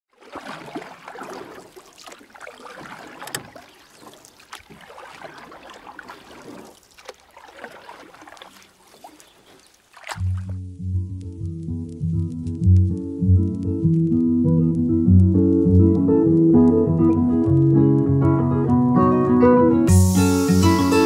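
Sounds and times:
sharp water splashes: 0.1s - 10.6s
water splashing and swishing: 0.1s - 10.7s.

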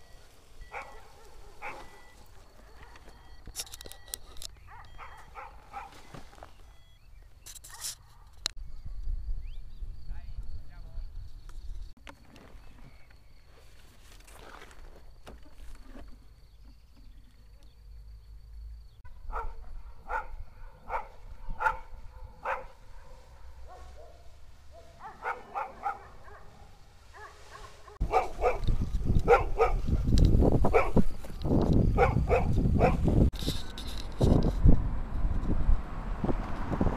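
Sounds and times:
dog barking: 0.6s - 3.2s, 4.7s - 6.0s, 19.3s - 29.9s, 30.7s - 31.0s, 32.0s - 33.1s
wind and microphone handling rumble: 19.1s - 23.1s, 28.0s - 36.9s.

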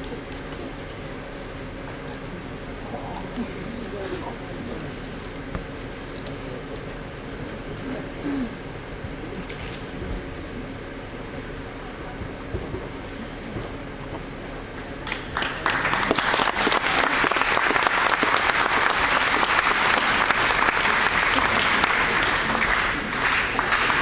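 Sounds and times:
large audience applauding: 15.0s - 24.0s.

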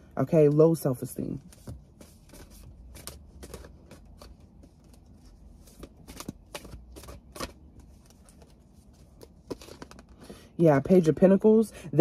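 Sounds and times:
cards being shuffled: 1.4s - 10.3s.

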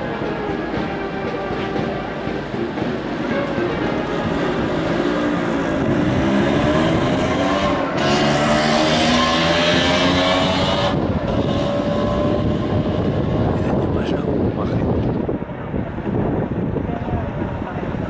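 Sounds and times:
crowd talking: 0.0s - 9.2s, 12.7s - 18.0s
procession band playing: 0.0s - 10.2s.

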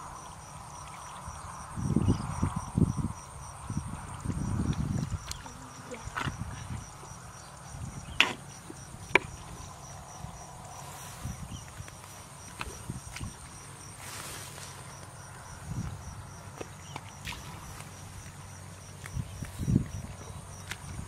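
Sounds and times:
insects trilling: 0.0s - 21.0s
mud squelching and sloshing: 4.6s - 7.0s, 10.7s - 15.1s, 16.3s - 21.0s.

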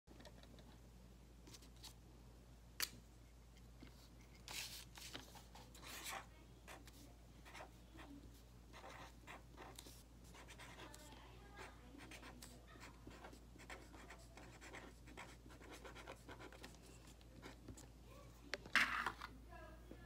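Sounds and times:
pen writing on paper: 8.8s - 11.0s, 12.0s - 16.8s.

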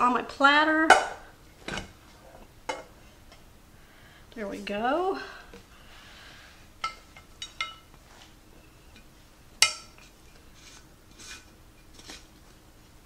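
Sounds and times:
dishes clinking: 6.8s - 8.0s, 8.6s - 10.4s.

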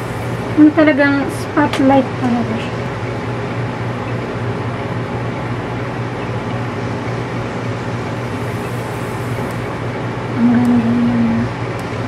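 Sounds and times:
airflow hiss: 0.0s - 2.1s, 7.7s - 10.5s
air conditioner hum: 0.0s - 12.0s.

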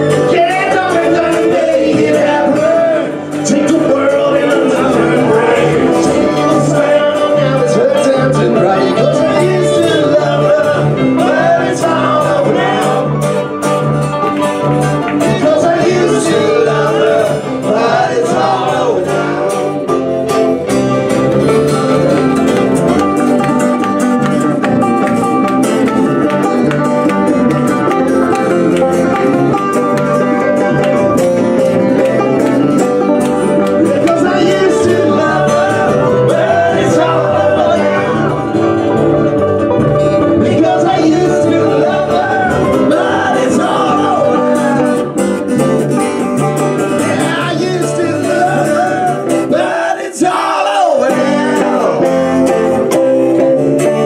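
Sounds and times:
person singing: 0.0s - 13.6s, 15.0s - 20.0s, 33.4s - 39.4s, 40.2s - 45.5s, 46.8s - 54.0s
live country band playing: 0.0s - 54.0s.

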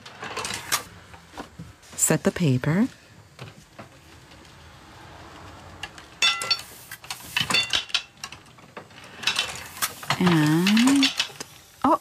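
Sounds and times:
printing press clinking and clicking: 6.2s - 11.5s.

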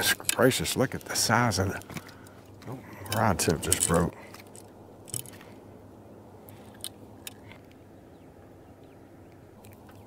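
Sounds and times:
faint clicks and rustles: 0.0s - 5.7s, 6.4s - 7.9s
low background rumble: 0.0s - 10.0s.

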